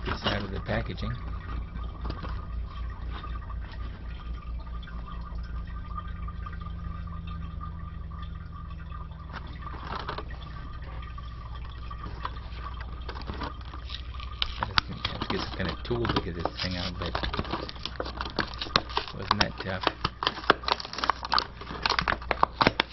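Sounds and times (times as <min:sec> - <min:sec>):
steady hum and hiss: 0:00.0 - 0:22.9
plastic packaging crackling: 0:09.2 - 0:22.9.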